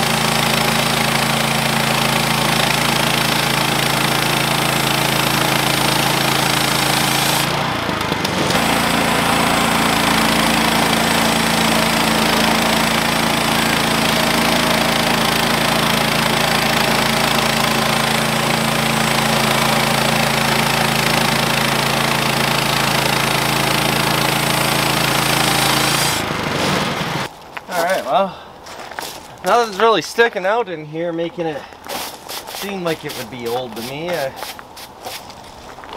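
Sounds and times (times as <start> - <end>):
sawmill gas engine running: 0.0 - 27.3, 31.9 - 34.6
band blade cutting log: 2.5 - 27.3, 31.9 - 35.4.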